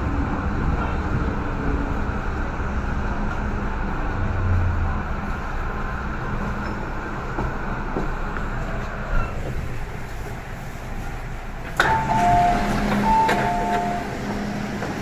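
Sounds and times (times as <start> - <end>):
metro station rumble and hum: 0.0 - 15.0.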